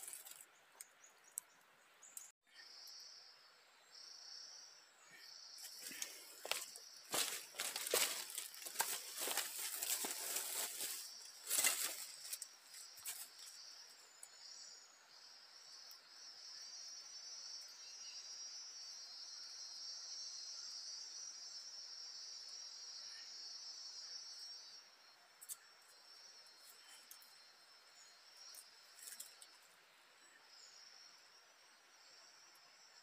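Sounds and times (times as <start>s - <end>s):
insect high steady trill: 4.0s - 33.0s
rustling and crackling: 5.7s - 13.5s.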